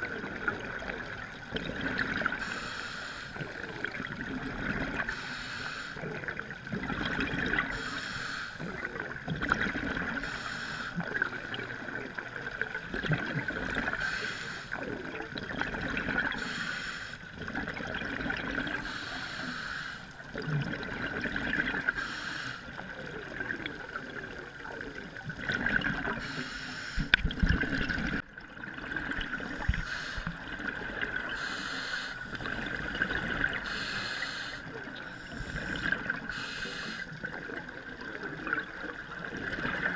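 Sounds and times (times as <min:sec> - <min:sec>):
bubbling exhaled air: 0:20.3 - 0:39.9.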